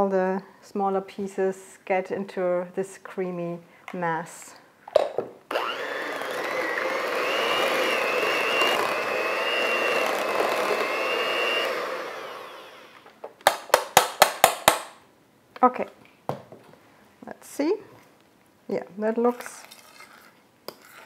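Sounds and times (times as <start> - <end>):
electric hand mixer whining: 5.5 - 13.1.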